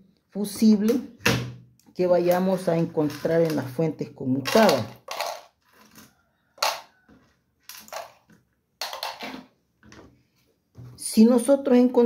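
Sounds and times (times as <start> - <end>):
rustling scraping handling noises: 4.6 - 11.0.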